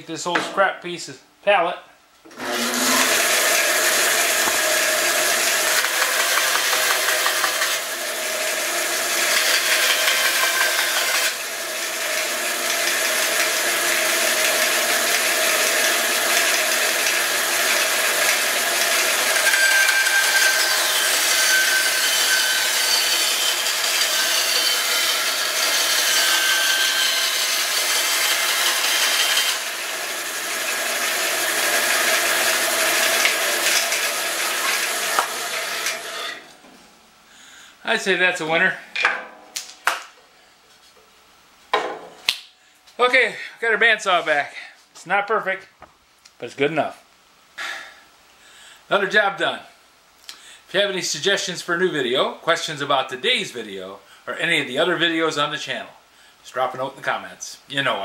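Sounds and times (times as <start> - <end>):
bandsaw cutting wood: 2.3 - 36.5.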